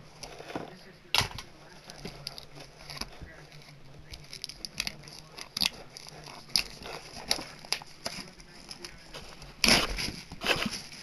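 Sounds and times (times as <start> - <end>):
cardboard box being opened by hand: 4.9 - 11.0.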